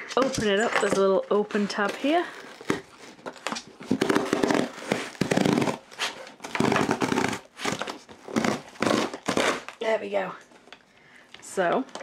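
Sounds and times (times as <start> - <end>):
cardboard box strip ripping: 2.4 - 9.8.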